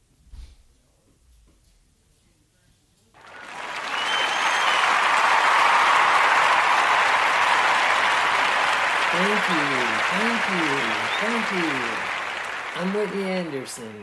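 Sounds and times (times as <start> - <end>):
crowd applauding and cheering: 3.2 - 14.0
short whistle: 3.8 - 5.1.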